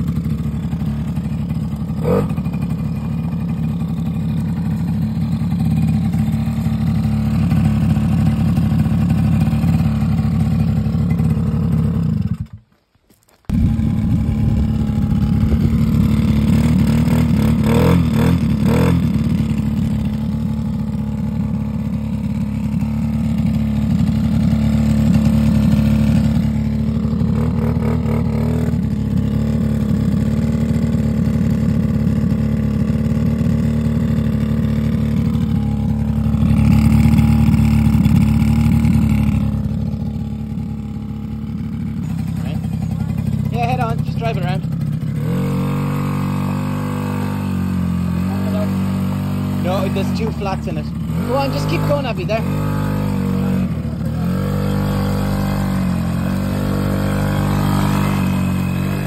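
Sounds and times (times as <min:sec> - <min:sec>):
small two-stroke engine running: 0:00.0 - 0:12.7, 0:13.5 - 0:59.0.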